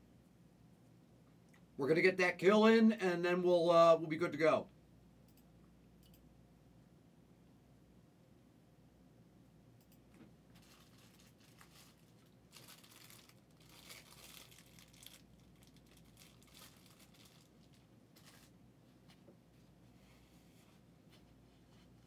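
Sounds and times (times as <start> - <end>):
low steady hum: 0.0 - 22.0
faint crinkling and rustling: 10.1 - 22.0.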